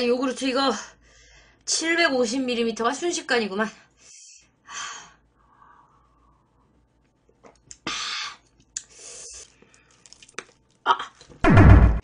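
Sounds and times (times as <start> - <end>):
small mouth clicks: 7.4 - 10.6.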